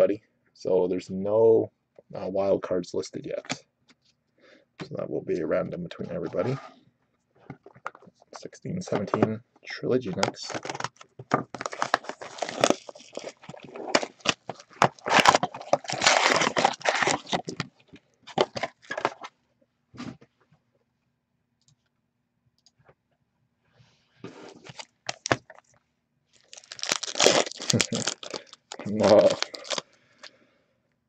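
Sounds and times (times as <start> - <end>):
cardboard and wrappers rustling: 10.1 - 19.3, 24.3 - 25.7, 26.4 - 29.8.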